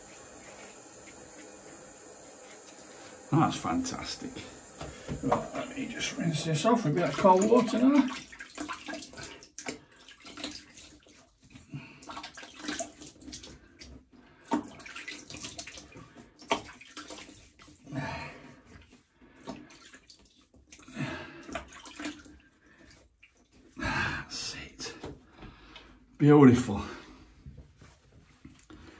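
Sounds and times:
water dripping: 0:00.0 - 0:18.0, 0:18.7 - 0:23.8
water splashed by hand: 0:04.9 - 0:17.9, 0:18.9 - 0:23.5.

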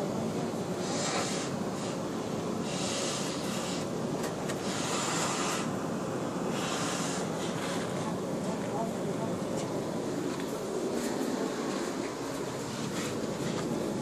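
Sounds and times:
hiss: 0:00.5 - 0:08.2.

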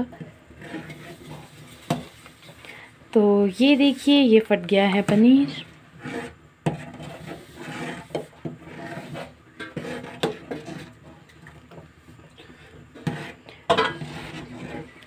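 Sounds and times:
spoon scraping metal pot: 0:00.0 - 0:02.6, 0:04.7 - 0:15.0.

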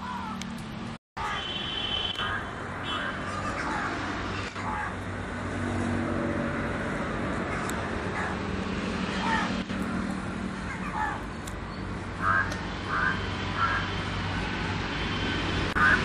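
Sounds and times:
birds calling: 0:01.2 - 0:05.1, 0:09.0 - 0:14.5.

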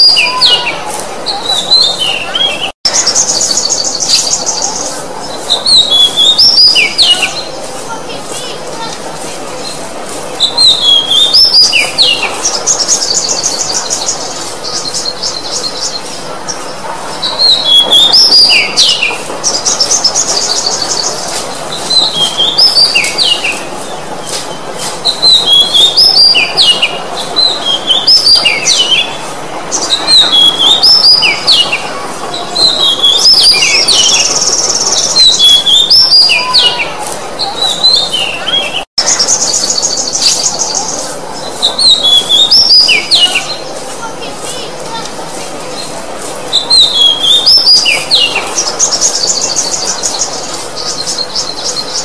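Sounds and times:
bird singing whistled notes: 0:00.0 - 0:07.5, 0:10.4 - 0:16.2, 0:25.0 - 0:29.1, 0:29.7 - 0:31.8, 0:32.6 - 0:36.8, 0:37.5 - 0:43.6, 0:46.5 - 0:52.0.

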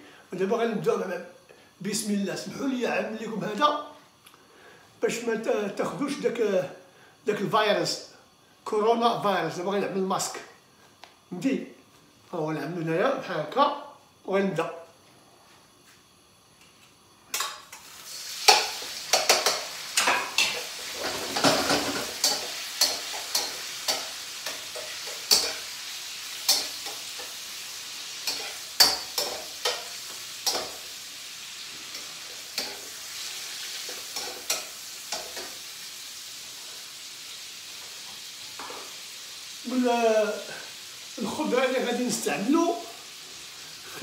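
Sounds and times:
chicken sizzling in hot oil: 0:17.7 - 0:44.0
utensil clacking against wok: 0:18.4 - 0:25.6.

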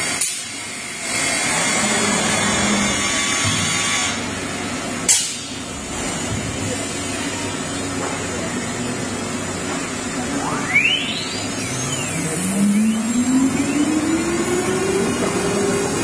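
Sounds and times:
cnc machine running: 0:09.9 - 0:16.0
sharp burst of noise: 0:10.1 - 0:15.6.

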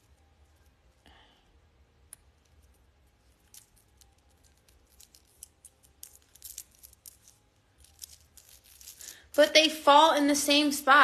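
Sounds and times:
beads rustling: 0:02.2 - 0:09.7.

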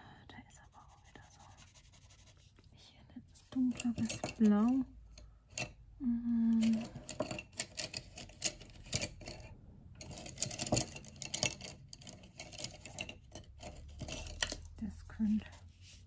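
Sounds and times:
pencil scratching on paper: 0:00.6 - 0:02.6
pencils clicking: 0:06.5 - 0:14.8.

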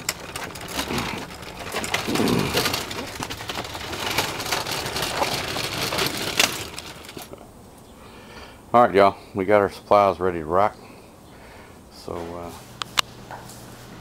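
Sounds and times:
hand truck rattling over concrete: 0:00.0 - 0:07.5.

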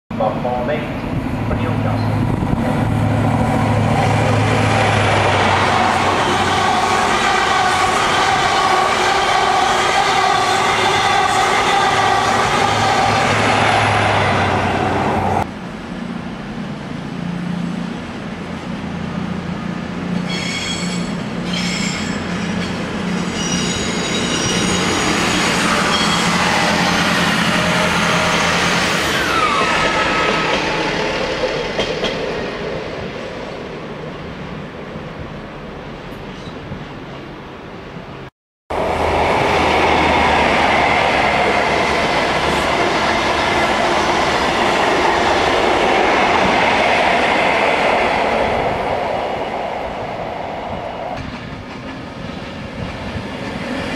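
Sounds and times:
diesel train passing: 0:00.1 - 0:53.9
diesel trains rolling and rumbling: 0:00.1 - 0:53.9
train mechanical drone: 0:00.1 - 0:53.9
high wheel squeals: 0:20.2 - 0:30.9.

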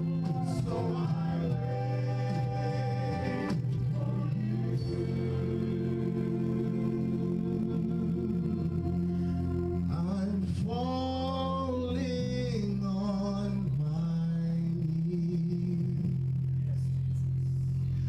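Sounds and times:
organ-type keyboard chords: 0:00.0 - 0:16.6
man singing into a microphone: 0:09.9 - 0:16.1.

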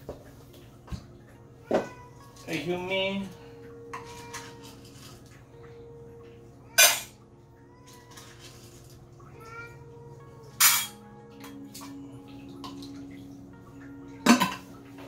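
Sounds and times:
cat meowing: 0:09.2 - 0:10.0.

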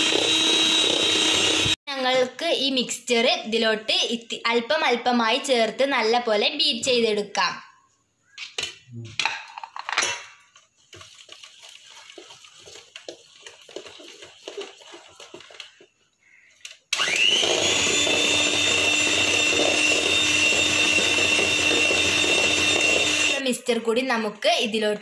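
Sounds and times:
electric hand mixer whining: 0:00.0 - 0:01.8, 0:11.4 - 0:15.8, 0:16.9 - 0:23.4.

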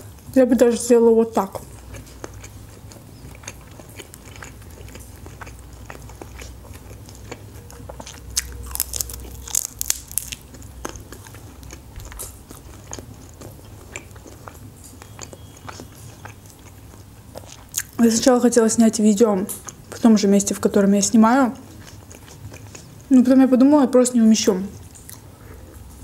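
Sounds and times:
crunchy biting and chewing: 0:01.6 - 0:18.0, 0:21.6 - 0:23.1.

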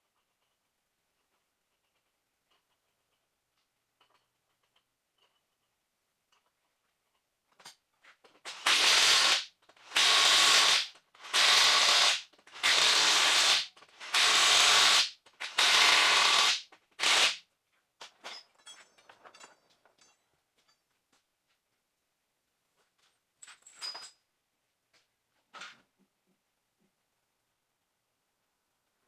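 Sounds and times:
impact wrench bursts: 0:08.5 - 0:17.4.

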